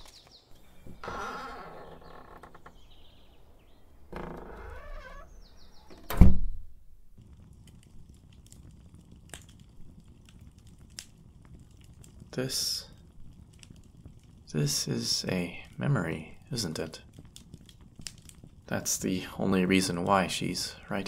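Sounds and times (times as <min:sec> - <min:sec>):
door creaking: 0:00.7 - 0:03.0, 0:04.0 - 0:06.6
door shutting with thud: 0:04.2 - 0:06.7.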